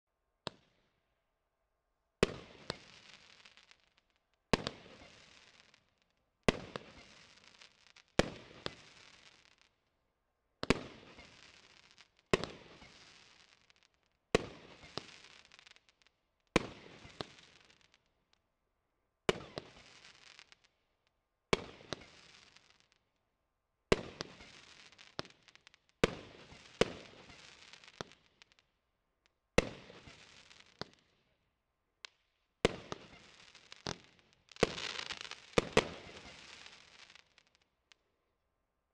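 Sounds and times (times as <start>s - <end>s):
firework crackling: 32.7s - 37.6s
firework bangs: 34.6s - 37.1s.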